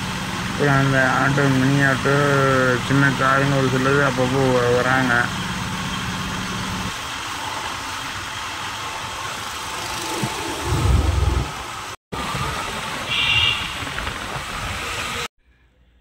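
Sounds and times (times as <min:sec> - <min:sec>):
motorbike engine and road noise: 0:00.0 - 0:15.3
low rumble: 0:09.8 - 0:12.0.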